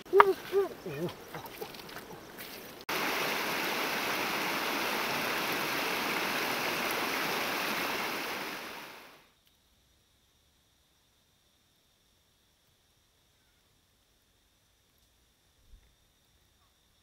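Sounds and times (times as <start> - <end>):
river rushing over rocks: 2.9 - 9.2.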